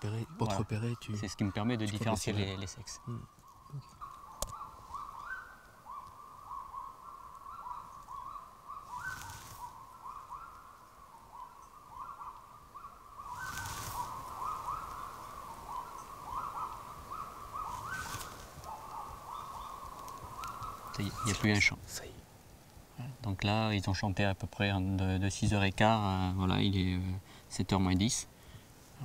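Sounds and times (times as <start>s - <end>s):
birds singing in chorus: 0.0s - 22.2s.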